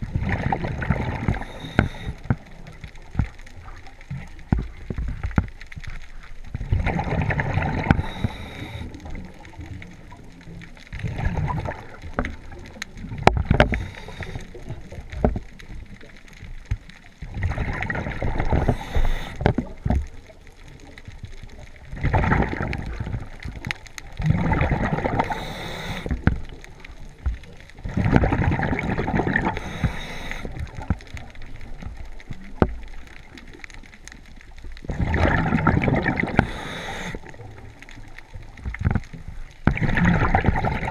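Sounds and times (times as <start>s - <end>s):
exhaled bubbles underwater: 0.0s - 40.9s
regulator hiss: 8.0s - 9.0s, 13.7s - 14.7s, 18.6s - 19.4s, 25.2s - 26.2s, 29.6s - 30.6s, 36.4s - 37.3s.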